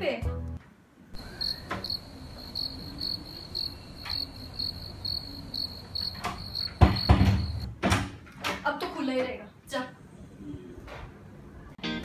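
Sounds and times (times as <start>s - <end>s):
cricket chirping: 1.2s - 7.7s
sharp thump: 6.2s - 7.7s.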